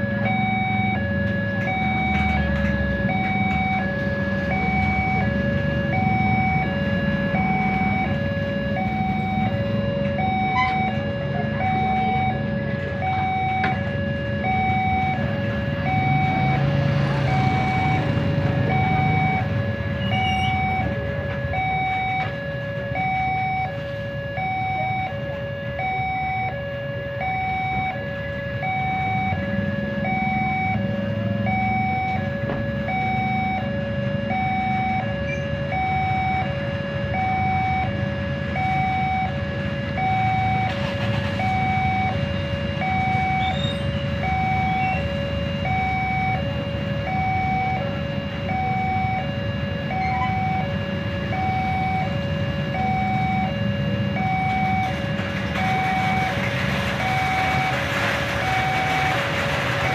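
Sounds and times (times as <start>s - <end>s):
idling vehicle engines: 0.0s - 59.9s
two-tone crossing alarm: 0.0s - 59.9s.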